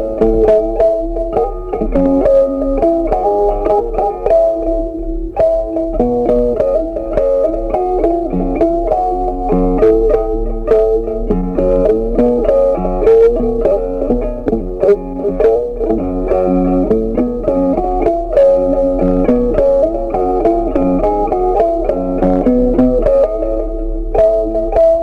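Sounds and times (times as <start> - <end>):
bass notes: 0.0 - 25.0
plucked string melody: 0.0 - 25.0.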